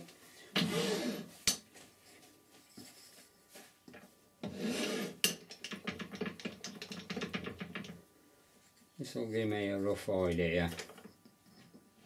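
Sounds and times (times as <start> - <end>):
wood rubbing and scraping: 4.4 - 5.2.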